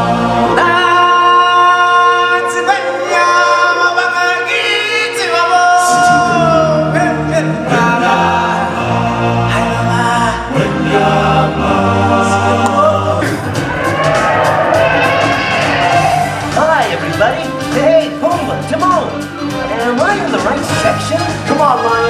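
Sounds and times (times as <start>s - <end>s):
voices singing together: 0.0s - 17.2s
musical accompaniment: 0.0s - 22.0s.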